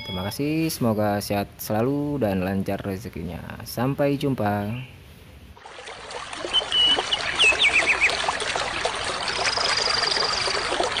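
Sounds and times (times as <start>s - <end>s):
water trickling and babbling: 5.5s - 11.0s
bird chirps: 6.4s - 8.2s, 9.4s - 10.6s.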